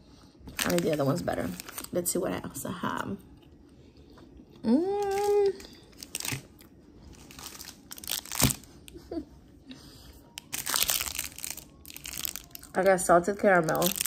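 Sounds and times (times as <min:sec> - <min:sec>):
plastic wrapping crinkling: 0:00.5 - 0:02.2, 0:05.0 - 0:09.2, 0:10.3 - 0:14.0
person humming: 0:04.6 - 0:05.7.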